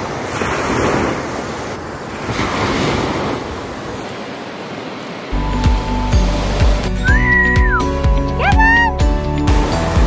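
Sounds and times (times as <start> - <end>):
small waves washing on sand: 0.0 - 5.4.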